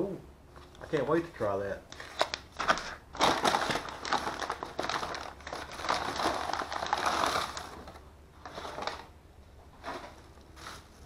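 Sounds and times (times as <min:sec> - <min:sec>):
paper bags crinkling: 0:01.9 - 0:09.1.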